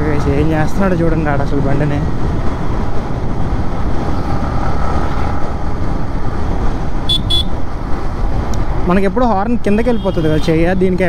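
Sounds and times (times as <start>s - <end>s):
wind buffeting microphone: 0.0s - 8.9s.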